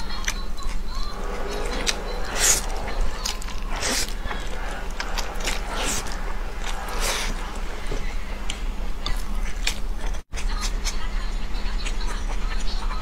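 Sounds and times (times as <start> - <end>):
slurping and chewing noodles: 0.0 - 11.0
low hum: 0.6 - 10.2.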